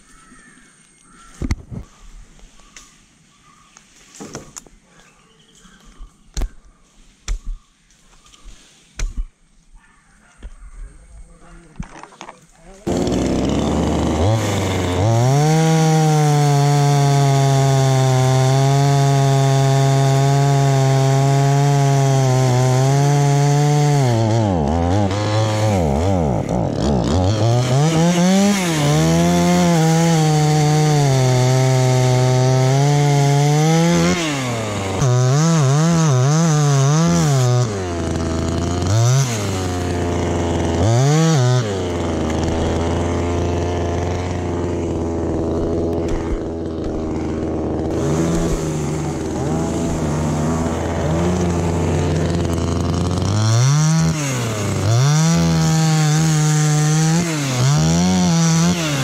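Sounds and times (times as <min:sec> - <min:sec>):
chainsaw cutting and idling: 0:11.8 - 0:59.0.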